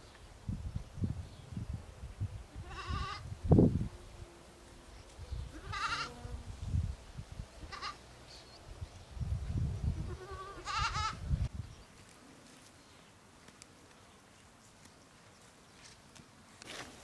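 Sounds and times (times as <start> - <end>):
goats bleating: 5.6 - 6.1, 10.0 - 11.2.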